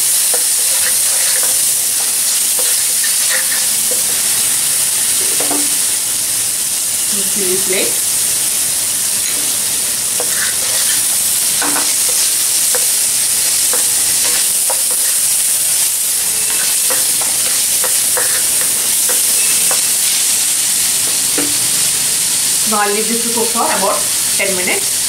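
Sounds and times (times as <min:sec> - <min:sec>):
food sizzling in oil: 0:00.0 - 0:25.0
spatula scraping and tapping pan: 0:00.2 - 0:04.5, 0:10.2 - 0:15.2, 0:16.1 - 0:20.2.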